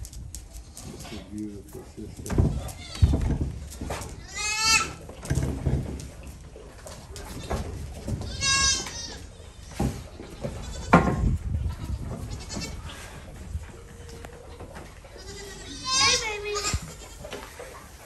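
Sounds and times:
goats bleating: 2.5 - 3.2, 4.2 - 5.1, 7.3 - 11.0, 11.7 - 13.0, 14.0 - 17.3.

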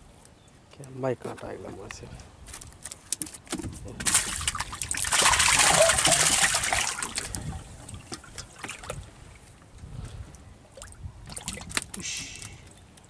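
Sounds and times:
water splashing and trickling: 2.8 - 13.0.

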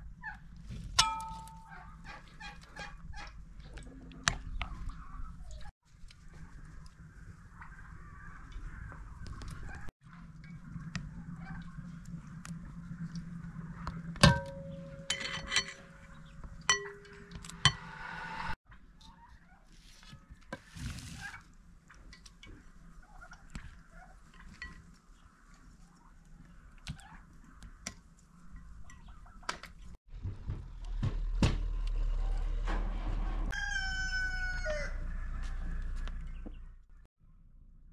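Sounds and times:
metal tongs clinking on glass bowl: 14.3 - 16.1, 16.7 - 17.4.

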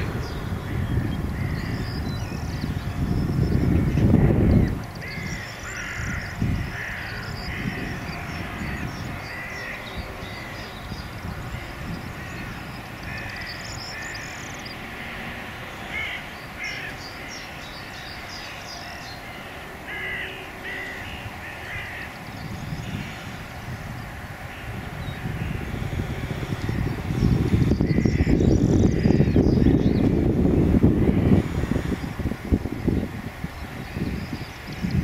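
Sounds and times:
flock of birds calling: 0.0 - 35.0.

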